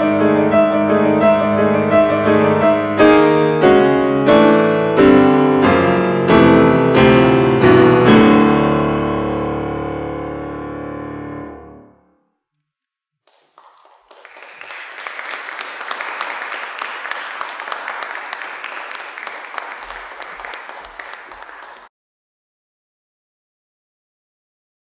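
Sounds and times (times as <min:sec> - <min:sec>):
audience applauding: 0:13.3 - 0:21.9.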